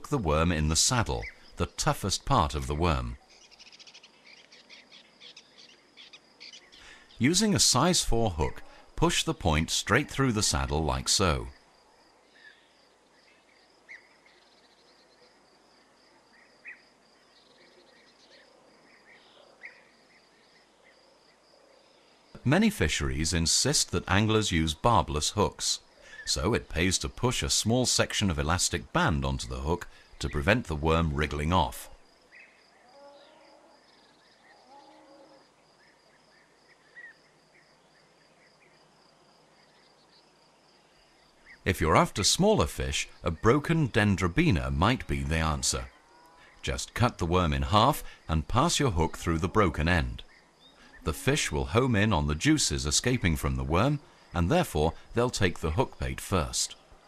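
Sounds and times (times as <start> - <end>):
insects chirring: 2.6 - 9.0, 9.8 - 31.1, 31.9 - 42.1, 50.1 - 51.1, 52.1 - 55.1
louder insect chirps: 3.2 - 7.2.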